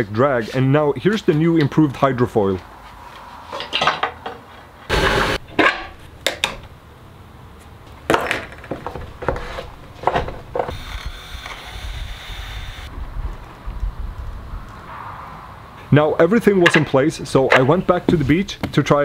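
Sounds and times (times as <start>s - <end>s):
cordless drill boring: 10.7s - 12.9s.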